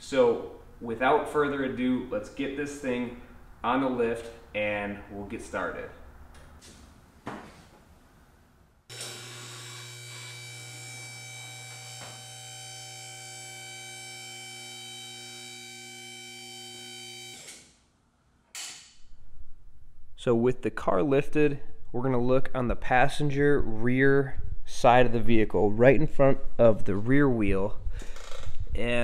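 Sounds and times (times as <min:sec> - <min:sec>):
electric motor and hydraulic pump: 0:08.9 - 0:17.8.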